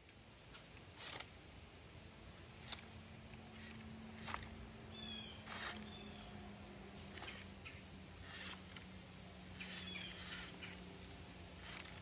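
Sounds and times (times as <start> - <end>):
faint low motor hum: 0.0 - 12.0.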